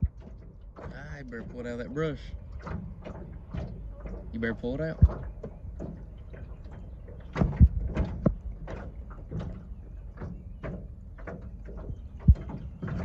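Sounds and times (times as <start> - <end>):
steady low rumble: 0.0 - 2.6
knocks and taps on boat hull: 0.0 - 13.0.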